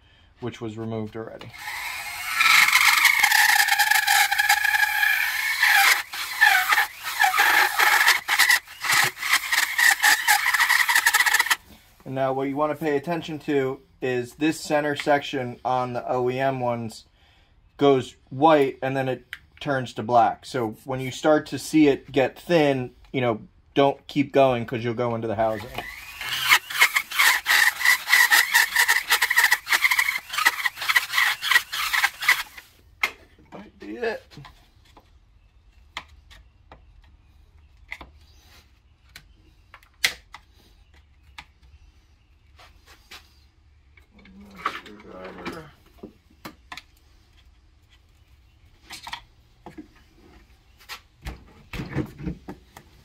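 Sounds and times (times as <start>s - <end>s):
pneumatic die grinder whining: 1.5s - 11.6s, 25.5s - 32.7s.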